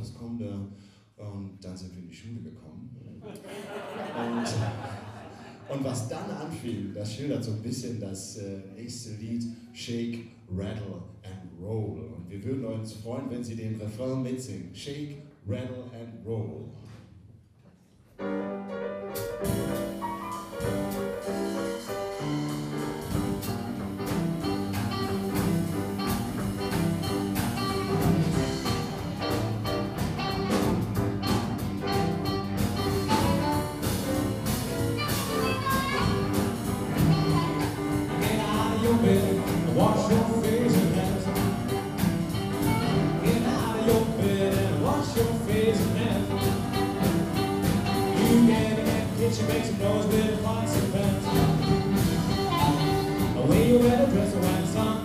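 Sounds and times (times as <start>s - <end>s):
drum kit: 5.7s - 8.0s, 18.5s - 55.0s
upright piano: 18.2s - 55.0s
blues harmonica: 19.4s - 54.3s.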